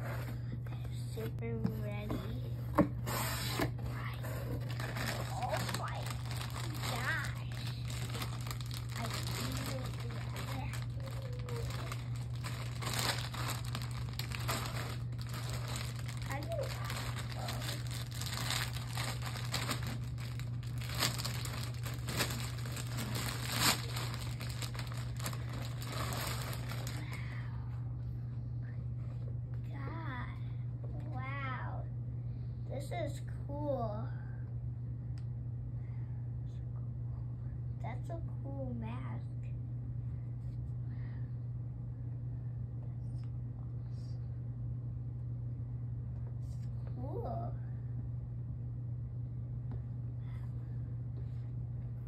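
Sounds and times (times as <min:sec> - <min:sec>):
steady low hum: 0:00.0 - 0:52.0
plastic bag crinkling: 0:04.0 - 0:27.2.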